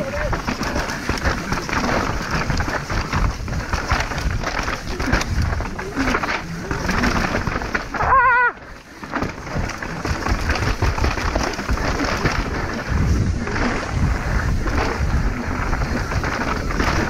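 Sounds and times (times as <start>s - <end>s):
bike tyres rattling over rough ground: 0.0s - 17.0s
wind on microphone: 9.6s - 17.0s.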